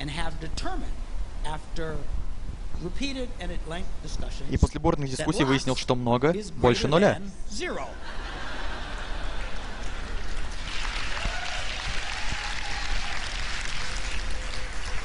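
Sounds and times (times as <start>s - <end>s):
audience applauding: 8.5s - 15.0s.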